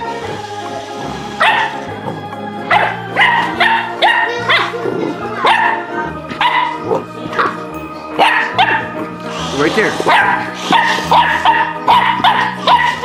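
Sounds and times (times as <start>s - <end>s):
background music: 0.0s - 13.0s
puppy barking: 1.4s - 1.8s, 2.7s - 4.8s, 5.4s - 7.5s, 8.2s - 9.0s, 10.0s - 13.0s.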